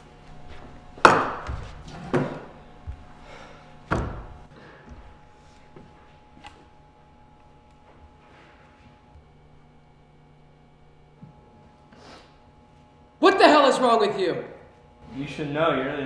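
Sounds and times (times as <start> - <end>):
loud thuds in echoing room: 0.6 - 5.2.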